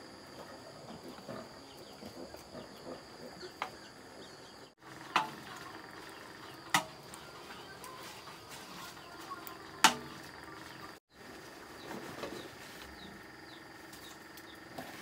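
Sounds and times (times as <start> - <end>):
pigs grunting: 0.7 - 3.6
sticks knocking: 5.0 - 5.6, 9.8 - 10.4.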